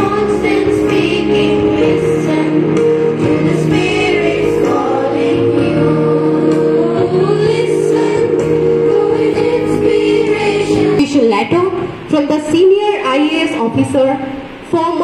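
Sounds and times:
group of voices singing: 0:00.0 - 0:11.1
held instrumental chords: 0:00.0 - 0:11.3.

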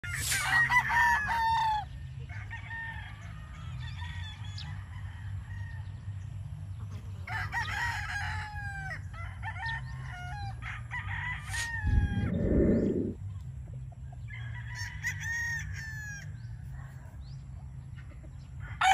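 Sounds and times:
roosters crowing: 0:00.0 - 0:06.3, 0:06.9 - 0:13.3, 0:14.2 - 0:16.6, 0:18.6 - 0:18.9
low steady rumble: 0:11.8 - 0:14.3.

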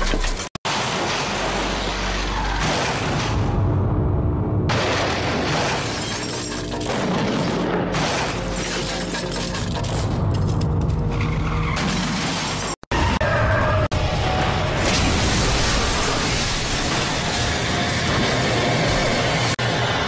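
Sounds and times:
car crashing and shattering: 0:04.7 - 0:10.6.

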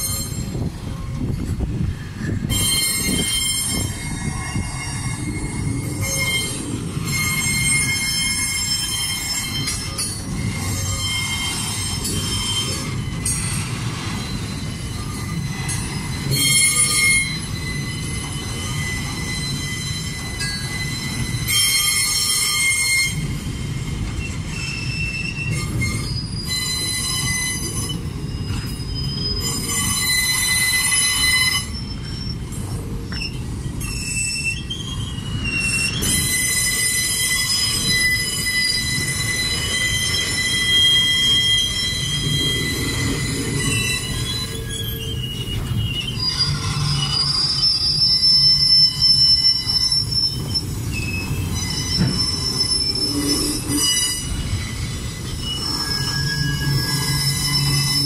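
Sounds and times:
low train rumble: 0:00.0 - 0:58.0
train wheels squealing: 0:00.0 - 0:58.0.

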